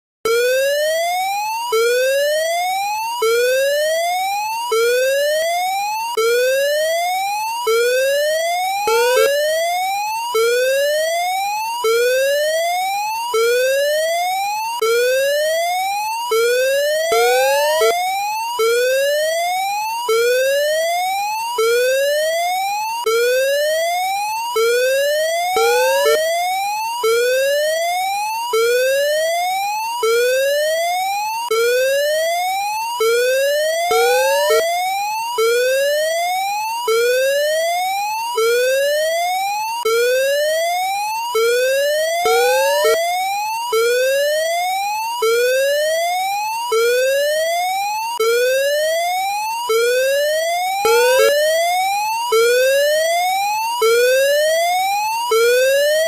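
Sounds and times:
rising whoop alarm tone: 8.9s - 9.7s, 17.1s - 18.2s, 25.6s - 26.2s, 33.9s - 34.7s, 42.3s - 43.0s, 50.8s - 51.5s.

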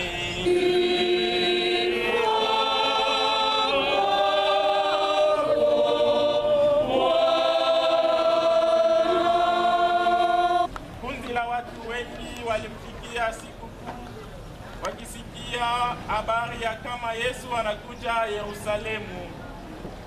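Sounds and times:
mixed choir singing: 0.0s - 10.7s.

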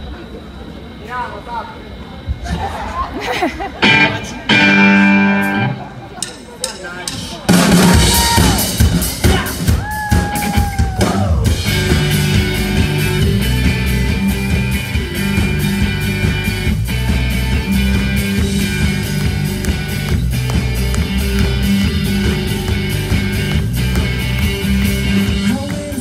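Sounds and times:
guitar note sliding down: 3.8s - 5.9s
rock band playing live: 3.8s - 26.0s.

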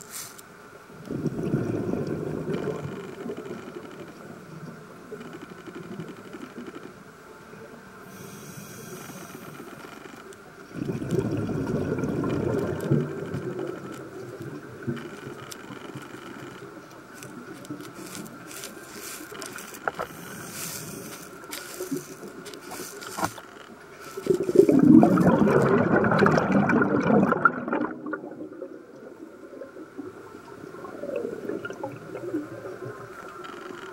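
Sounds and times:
faint constant hum: 0.0s - 33.9s
muffled underwater hiss: 0.0s - 33.9s
underwater rumbling: 1.0s - 6.7s, 10.6s - 33.9s
clicks and crackles: 5.1s - 7.0s, 9.0s - 28.2s, 30.4s - 33.9s.

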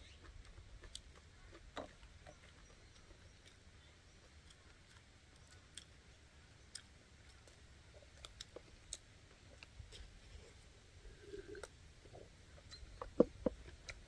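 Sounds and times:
chewing clicks: 0.0s - 6.0s, 6.7s - 10.1s, 12.6s - 14.0s.

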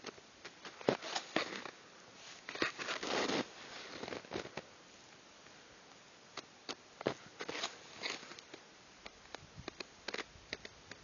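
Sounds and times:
snowshoe steps crunching in snow: 0.6s - 4.6s.

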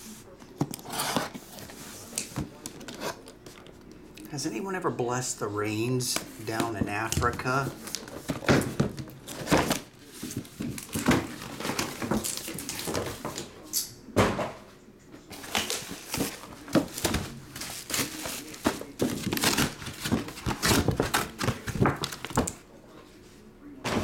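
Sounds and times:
bubble wrap crinkling: 15.4s - 22.6s.

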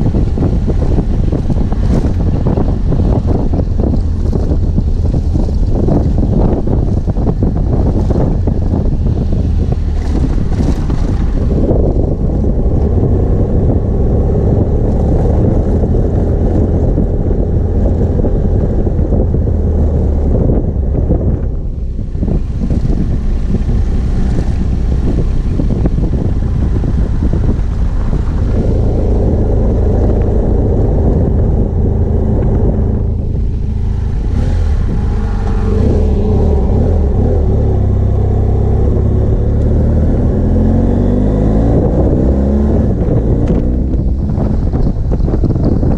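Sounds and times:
motorcycle engine accelerating: 0.0s - 45.9s.

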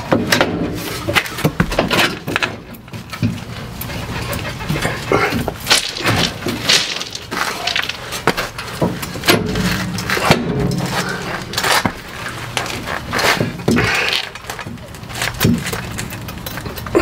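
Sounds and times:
metal clunks and knocks: 5.3s - 11.1s.

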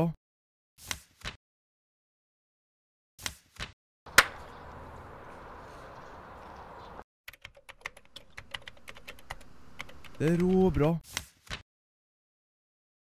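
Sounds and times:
typing on computer keyboard: 7.3s - 10.6s.

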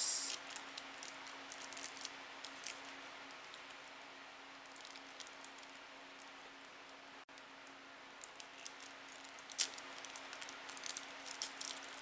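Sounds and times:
faint steady hum: 0.0s - 12.0s
plastic wrapping crinkling: 0.3s - 3.7s, 4.6s - 6.7s, 8.2s - 12.0s.

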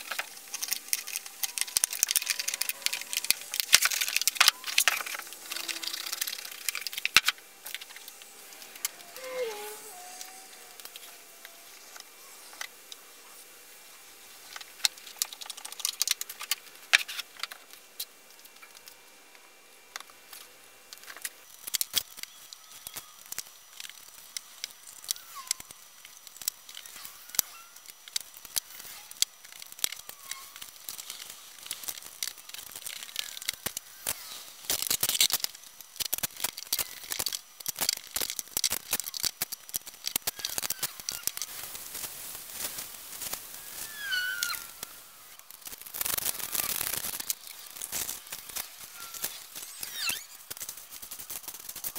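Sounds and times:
plastic cling wrap crinkling: 0.0s - 12.9s, 21.0s - 51.9s.

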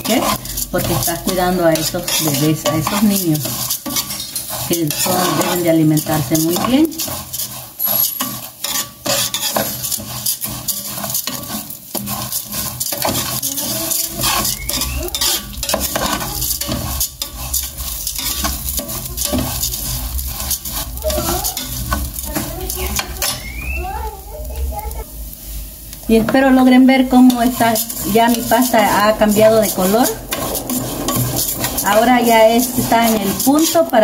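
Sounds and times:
metal spoon scraping a pot: 0.0s - 23.8s, 26.2s - 34.0s
noodles sizzling in oil: 0.0s - 34.0s.

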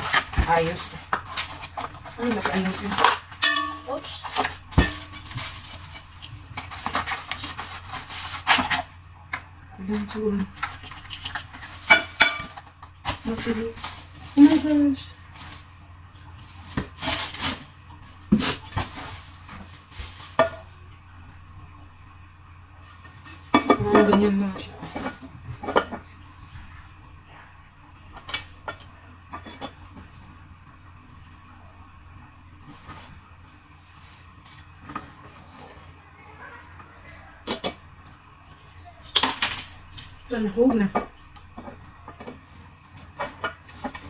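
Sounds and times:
packaging scraping and rustling: 0.0s - 8.9s, 10.5s - 15.7s, 16.4s - 17.8s, 18.4s - 20.7s
packaging rustling: 10.6s - 15.7s.

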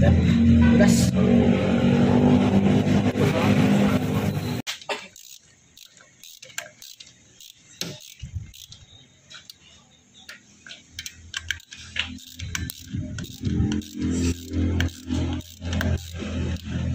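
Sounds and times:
ratchet wrench clicking: 5.1s - 9.6s, 10.3s - 16.9s.

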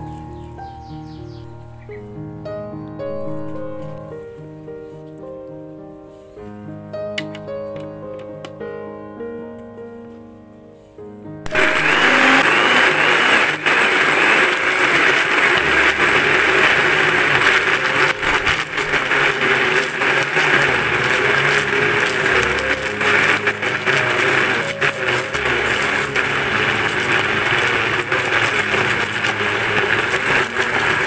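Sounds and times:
electric blender grinding: 11.5s - 31.0s.

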